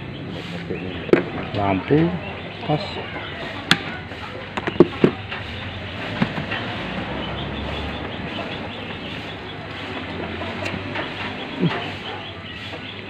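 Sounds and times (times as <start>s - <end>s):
steady background noise: 0.0s - 13.0s
sharp clicks and knocks: 4.5s - 12.0s.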